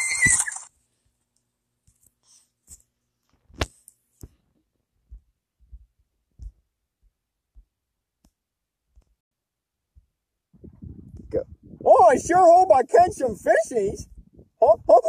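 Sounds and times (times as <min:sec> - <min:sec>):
soft low thumps and taps: 0:05.0 - 0:07.7.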